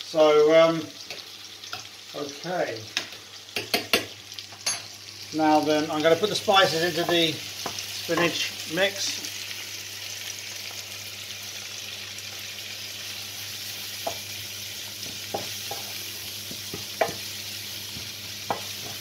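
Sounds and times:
food sizzling in a frying pan: 0.0 - 19.0
wooden spoon knocking on pan: 3.0 - 4.1, 7.0 - 8.4, 14.0 - 14.3, 15.0 - 17.3, 17.9 - 19.0.

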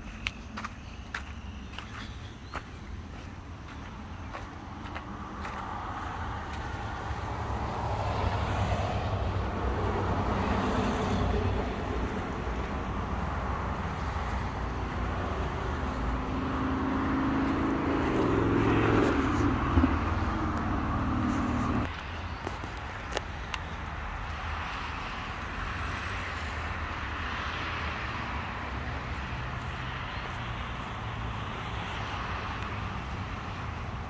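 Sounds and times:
engine droning: 0.0 - 22.1
road traffic passing: 0.0 - 34.0.

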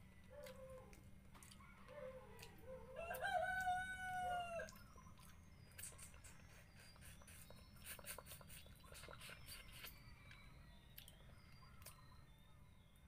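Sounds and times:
eating clicks and smacks: 0.2 - 1.7, 2.4 - 3.8, 4.7 - 12.1
rooster crowing: 2.9 - 4.7.

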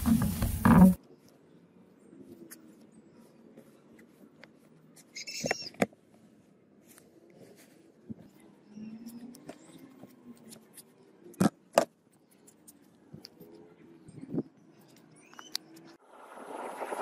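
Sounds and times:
sand rustling and scraping: 0.0 - 1.0
steady rushing noise: 16.0 - 17.0.

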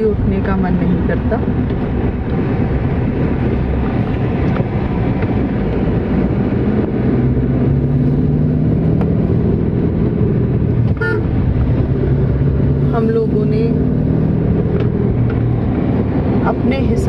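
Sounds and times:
car road and engine rumble: 0.0 - 17.0
engine hum: 0.0 - 17.0.

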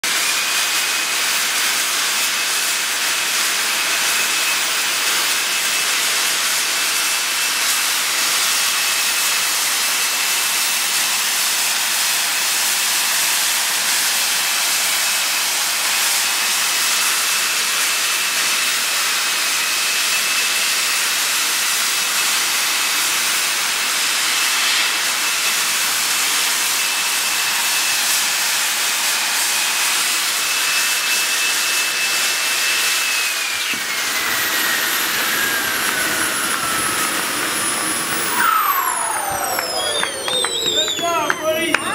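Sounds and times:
model jet engines hissing: 0.1 - 41.9
high whistle: 22.9 - 28.4, 33.2 - 41.9.

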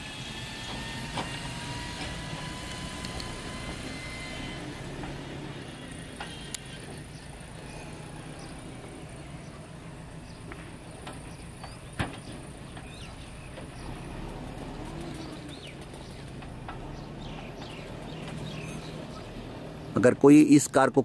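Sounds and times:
bird chirps: 6.2 - 20.1.

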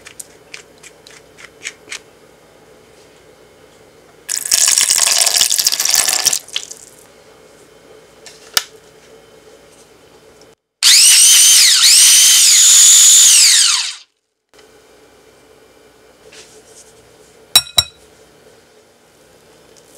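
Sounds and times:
water poured into plastic jar: 4.3 - 7.0
blender motor whining: 10.8 - 14.1.

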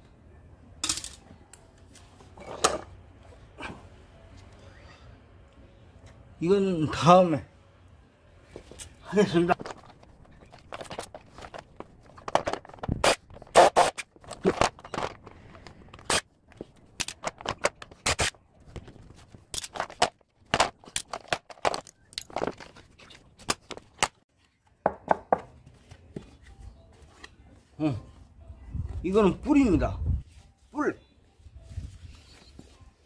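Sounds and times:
plastic parts clacking and scraping: 9.5 - 24.2.

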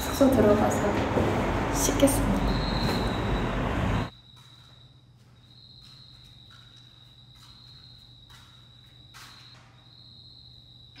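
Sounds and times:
cricket trilling: 2.4 - 3.4, 4.0 - 11.0
soft footsteps: 4.3 - 9.8.

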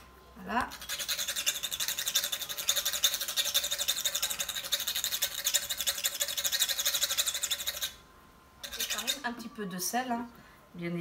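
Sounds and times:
nutmeg grating rasp: 0.7 - 8.0, 8.6 - 9.4.

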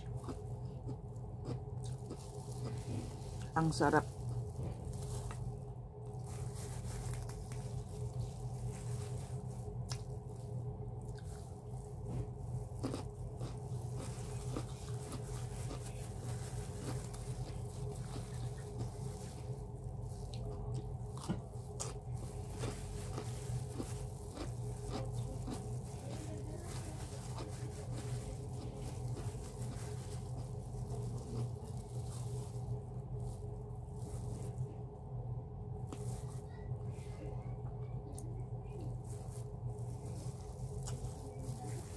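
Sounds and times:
person chewing: 0.0 - 3.6, 6.2 - 10.4, 11.1 - 32.8, 39.2 - 41.5
plastic glove crinkling: 0.0 - 41.9
steady low hum: 0.0 - 41.9.

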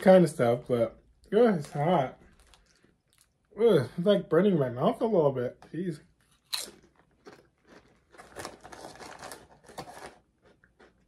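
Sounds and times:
foil bag crinkling: 1.5 - 3.3, 6.3 - 10.6
chips being chewed: 1.6 - 3.5, 6.2 - 11.0.

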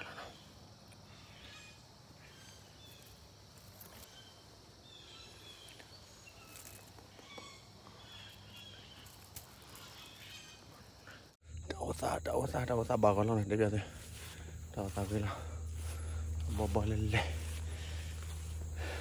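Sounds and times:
bird chirps: 0.0 - 19.0
low steady hum: 11.4 - 19.0.

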